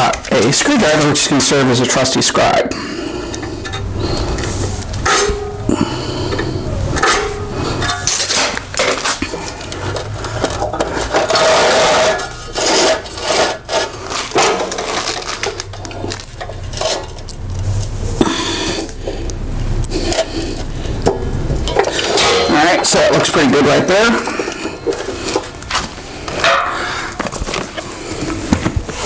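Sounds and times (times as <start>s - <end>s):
steel clanking: 2.8s - 17.3s, 19.9s - 27.8s
screwdriver scratching steel: 11.0s - 15.2s.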